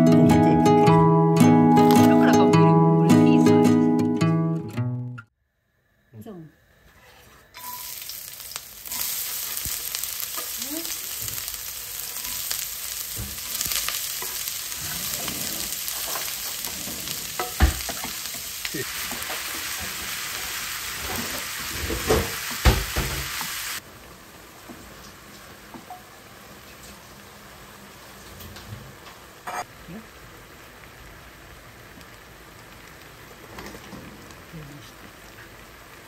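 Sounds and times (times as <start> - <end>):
garlic and onion sizzling in oil: 7.4 - 36.0.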